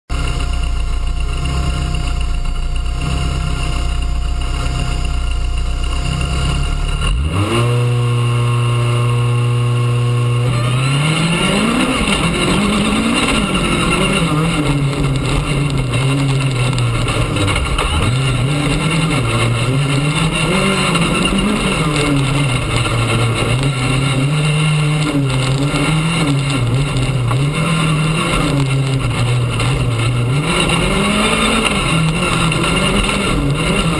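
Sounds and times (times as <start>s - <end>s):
rally car engine revving: 0.1s - 33.9s.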